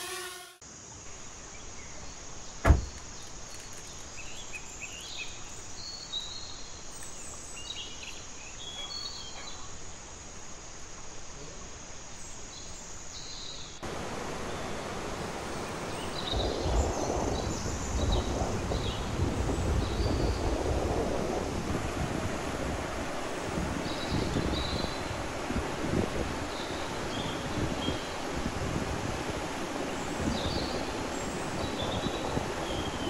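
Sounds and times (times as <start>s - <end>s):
birds chirping: 0.0s - 10.5s, 11.6s - 20.6s, 29.7s - 33.0s
steady outdoor hiss: 0.0s - 33.0s
car door slamming: 2.6s - 3.0s
wind gusting across microphone: 13.8s - 33.0s.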